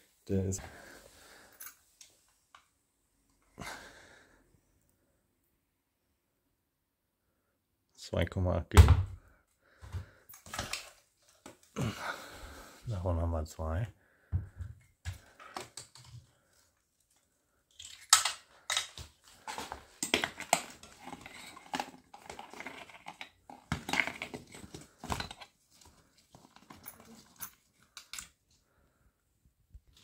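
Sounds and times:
straps and fittings clattering: 17.7s - 28.4s.

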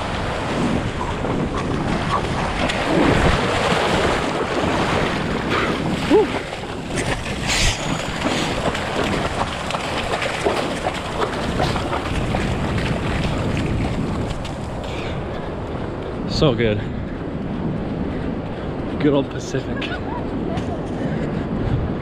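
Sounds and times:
water splashing: 0.0s - 15.0s
ocean surf rushing and foaming: 0.0s - 22.0s
wind on microphone: 0.0s - 22.0s.

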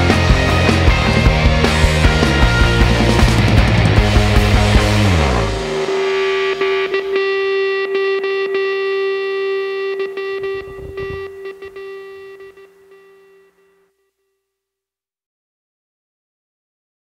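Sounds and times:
rock music: 0.0s - 13.1s
long held guitar note: 5.0s - 13.8s.

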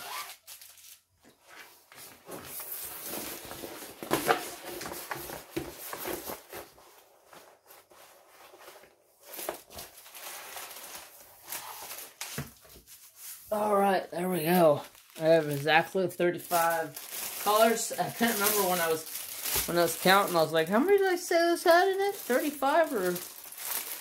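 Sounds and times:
plastic film rustling and crinkling: 0.0s - 24.0s
sharp plastic crackle: 9.2s - 12.6s, 14.4s - 24.0s.

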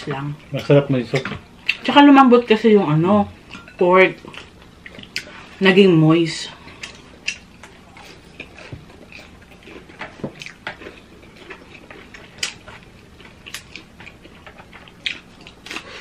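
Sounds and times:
chewing and mouth sounds: 3.4s - 5.5s, 6.6s - 16.0s.

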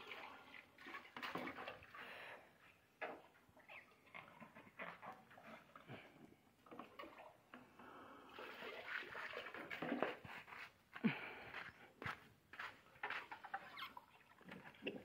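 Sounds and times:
liquid gulping and splashing: 13.8s - 15.0s.

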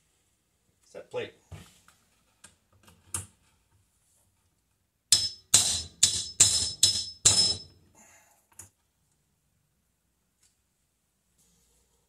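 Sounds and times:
hammer striking metal tool: 5.1s - 7.8s.

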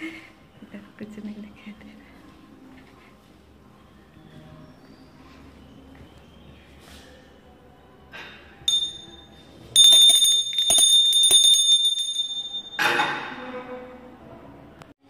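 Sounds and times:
small high-pitched bell ringing: 8.7s - 12.9s.

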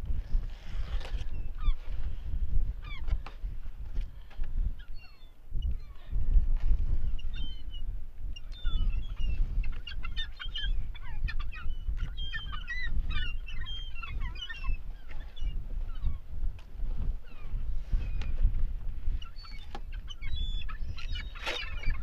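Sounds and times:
gulls calling: 8.4s - 16.3s, 19.1s - 22.0s.

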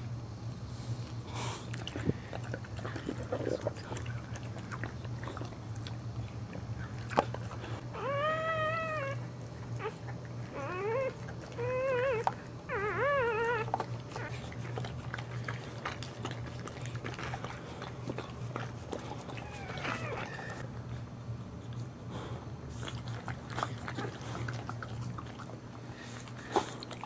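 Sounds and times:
steady low hum: 0.0s - 27.0s
dog whimpering: 7.8s - 15.2s, 18.9s - 20.6s.

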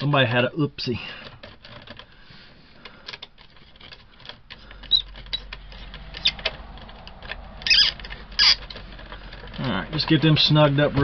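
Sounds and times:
screwdriver clicking and scraping: 1.2s - 2.1s, 2.8s - 10.2s.

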